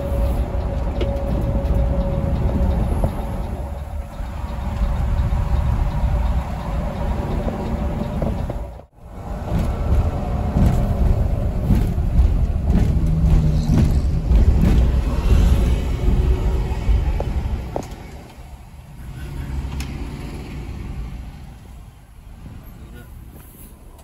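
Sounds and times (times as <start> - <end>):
bus engine and road rumble: 0.0 - 24.0.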